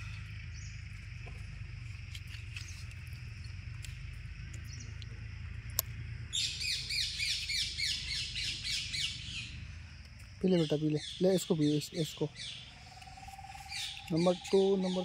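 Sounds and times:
steady low hum: 0.0s - 10.4s, 11.0s - 15.0s
faint chirps: 6.3s - 15.0s.

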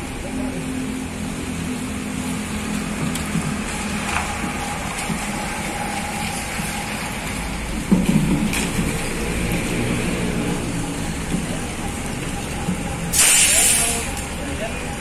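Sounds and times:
diesel bus engine rumbling: 0.0s - 15.0s
hiss: 13.1s - 14.2s.

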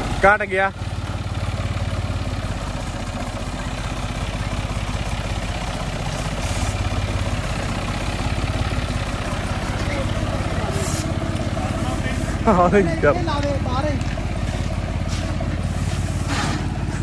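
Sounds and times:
tractor diesel engine running: 0.0s - 17.0s
brief hiss: 10.8s - 11.1s.

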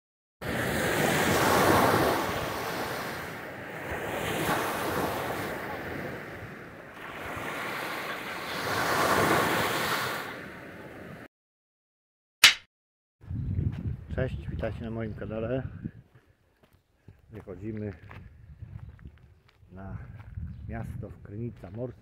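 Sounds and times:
waves breaking on shore: 0.4s - 11.3s
wind buffeting microphone: 13.2s - 16.2s, 17.2s - 22.0s.

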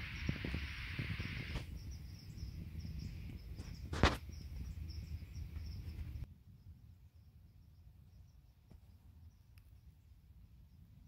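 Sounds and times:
handling and wind rumble: 0.0s - 6.8s.

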